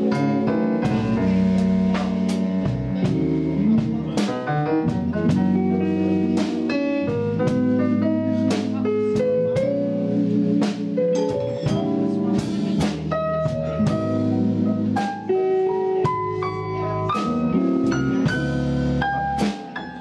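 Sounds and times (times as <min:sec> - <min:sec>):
drum and cymbal hits: 0:00.0 - 0:07.8, 0:08.4 - 0:15.3
sustained bass: 0:00.0 - 0:19.6
keyboard playing quick notes: 0:00.0 - 0:20.0.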